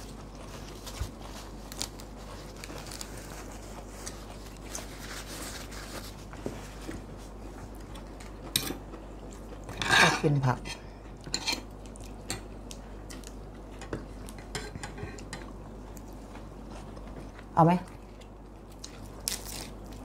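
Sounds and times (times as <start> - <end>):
paper tissue rustling: 0.0 - 7.5
chewing: 11.6 - 20.0.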